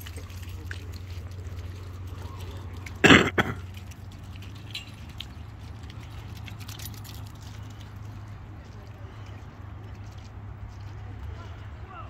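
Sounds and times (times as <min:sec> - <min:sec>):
person coughing: 0:03.0 - 0:03.6.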